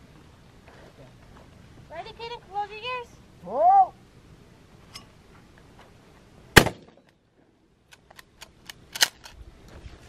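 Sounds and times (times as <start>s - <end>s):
shotgun blast: 6.6s - 7.0s.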